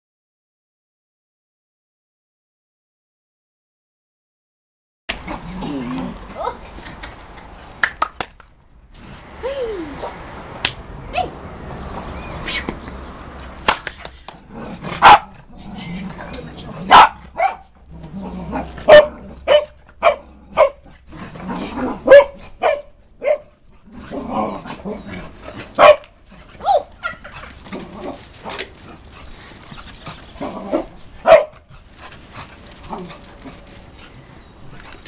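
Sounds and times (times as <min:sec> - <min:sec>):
dogs barking in play: 0:05.1 - 0:07.6, 0:11.1 - 0:35.0.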